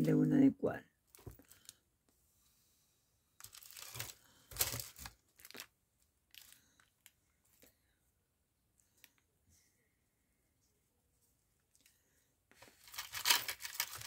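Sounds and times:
hands rustling craft trims: 12.5s - 14.0s.

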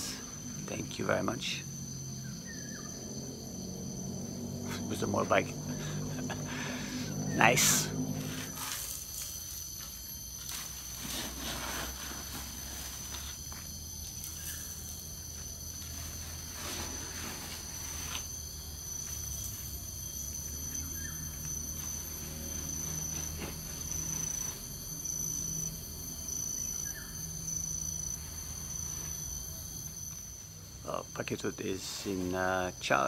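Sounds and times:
crickets chirping: 0.0s - 33.0s
low hum: 2.7s - 11.2s.

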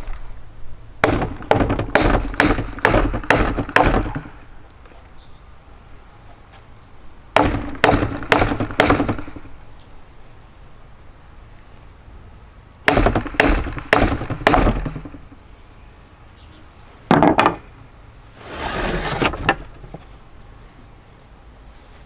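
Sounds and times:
hammer striking metal chisel: 1.0s - 4.3s, 7.4s - 9.4s, 12.9s - 15.2s.

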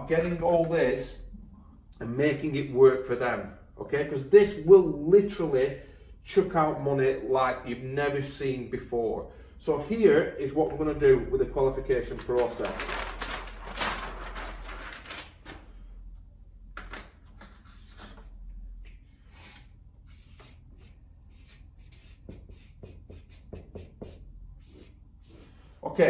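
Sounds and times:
paper sheet rustling: 12.0s - 15.9s
marker scratching on paper: 20.1s - 25.6s.

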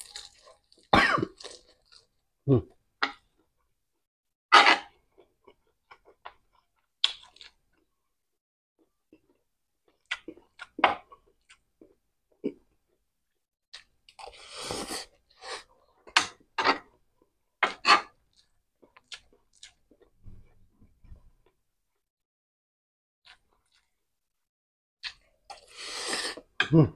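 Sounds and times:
person chewing: 0.0s - 2.6s, 18.3s - 20.1s, 23.3s - 23.9s
slurping noodles: 14.2s - 15.7s, 25.5s - 26.5s.

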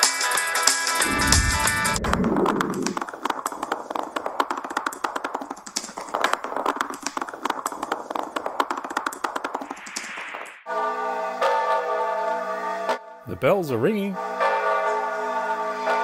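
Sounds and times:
short hissing whoosh: 1.0s - 3.0s.

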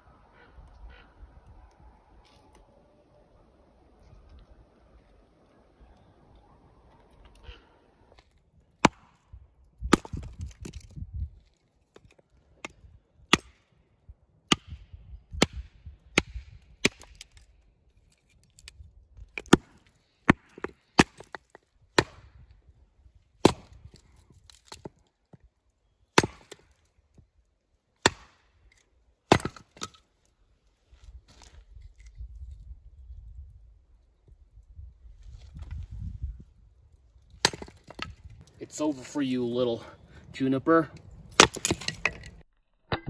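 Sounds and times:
axe chopping a log: 8.8s - 9.2s, 9.9s - 10.9s, 13.3s - 13.6s, 14.5s - 14.8s, 15.4s - 17.4s, 19.4s - 22.3s, 23.4s - 25.0s, 26.2s - 26.8s, 28.0s - 28.5s, 29.3s - 30.0s, 37.4s - 38.1s, 41.3s - 42.3s.

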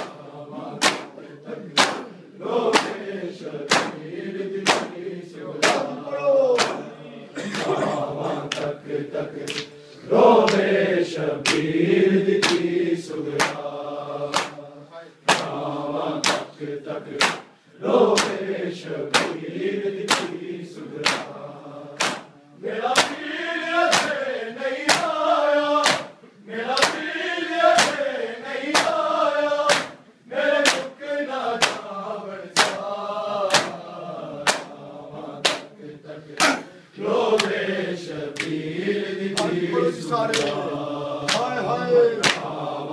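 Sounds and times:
hands slapping chests: 0.0s - 5.0s, 5.6s - 6.9s, 7.5s - 7.8s, 8.4s - 8.8s, 9.4s - 9.8s, 10.4s - 10.7s, 11.4s - 11.7s, 12.4s - 12.7s, 13.3s - 13.7s, 14.3s - 14.6s, 15.2s - 15.6s, 16.2s - 16.5s, 17.1s - 18.5s, 19.1s - 19.4s, 20.0s - 20.4s, 21.0s - 21.4s, 22.0s - 23.3s, 23.9s - 25.2s, 25.8s - 27.1s, 27.7s - 28.1s, 28.7s - 29.0s, 29.7s - 30.0s, 30.6s - 31.0s, 31.6s - 31.9s, 32.6s - 33.8s, 34.4s - 34.8s, 35.4s - 36.7s, 37.3s - 37.6s, 38.3s - 38.6s, 39.4s - 39.7s, 40.3s - 41.6s, 42.2s - 42.6s
men chanting in unison: 0.0s - 42.9s.

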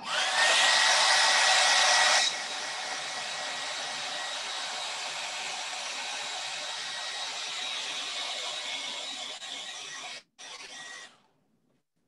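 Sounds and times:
hair dryer running: 0.0s - 6.7s.

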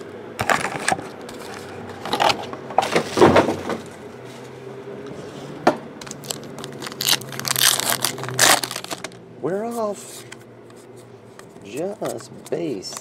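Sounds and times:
foil wrappers crinkling: 6.0s - 9.2s.

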